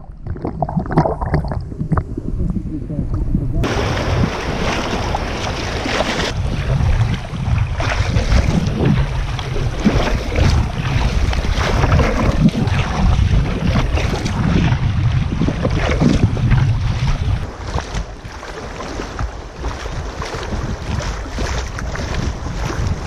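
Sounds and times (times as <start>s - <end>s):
wind buffeting microphone: 1.2s - 23.0s
river water rushing and splashing: 3.6s - 14.6s, 17.0s - 23.0s.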